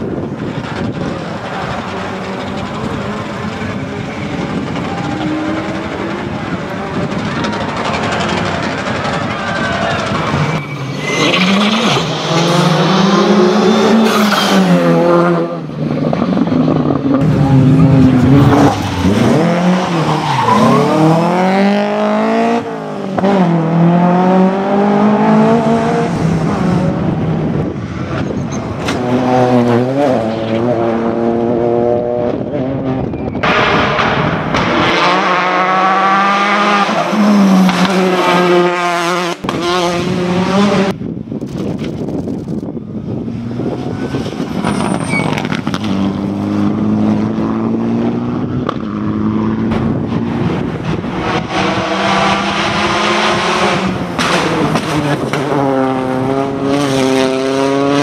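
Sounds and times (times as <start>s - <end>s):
rally car engines revving: 0.0s - 58.0s
tyre squeal: 9.4s - 12.6s, 44.0s - 45.8s.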